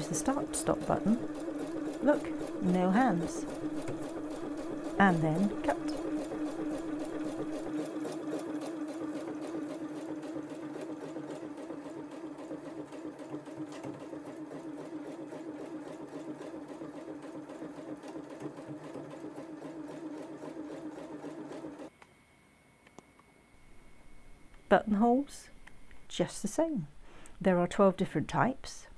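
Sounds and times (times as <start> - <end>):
sewing machine motor hum: 0.0 - 21.9
sewing needle strokes: 0.0 - 21.9.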